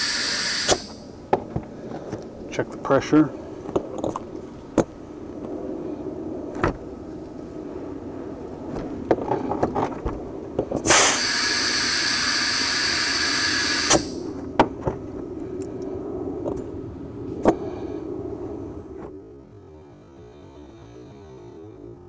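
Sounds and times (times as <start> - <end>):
compressed air hissing: 0.0 - 1.1, 10.8 - 14.4
steady low hum: 0.0 - 22.0.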